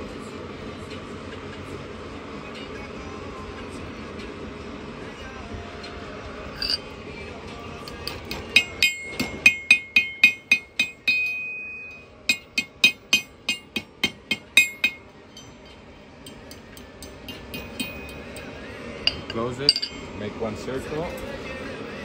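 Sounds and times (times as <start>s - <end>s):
anvil ringing: 6.6s - 6.8s, 8.2s - 16.4s, 17.0s - 18.4s, 19.0s - 20.3s
hammer striking iron on anvil: 6.6s - 6.8s, 7.8s - 20.3s.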